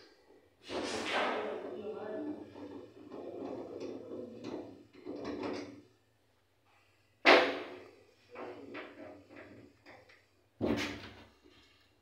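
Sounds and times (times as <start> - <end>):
sharp bang: 0.8 - 1.6.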